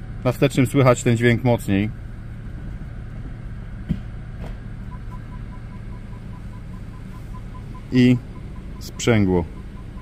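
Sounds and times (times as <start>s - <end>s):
car engine idling: 0.0s - 10.0s
whirring under car: 0.0s - 10.0s
parking sensor beeps: 4.8s - 10.0s.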